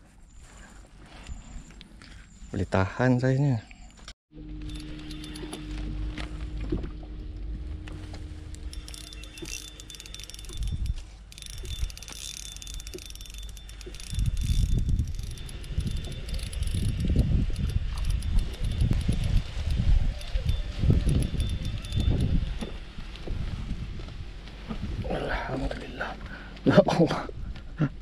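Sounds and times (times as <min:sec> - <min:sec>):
fishing reel whirring and ticking: 0:04.6 - 0:06.8, 0:07.8 - 0:22.8
wind buffeting microphone: 0:13.8 - 0:25.5.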